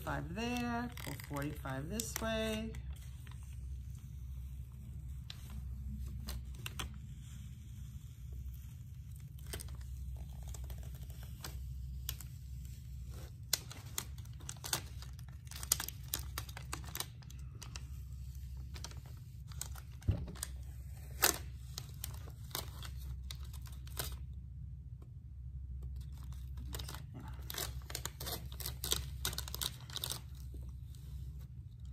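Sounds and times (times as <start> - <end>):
stencil peeling off paint crackling: 0.0 - 24.2
steady low hum: 0.0 - 31.9.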